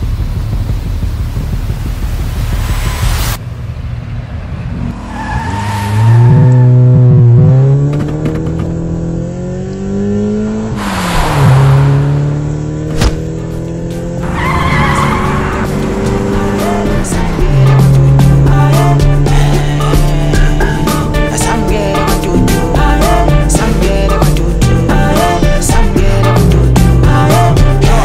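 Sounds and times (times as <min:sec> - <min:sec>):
car engine accelerating: 0:00.0 - 0:25.4
tyres squealing: 0:14.2 - 0:15.8.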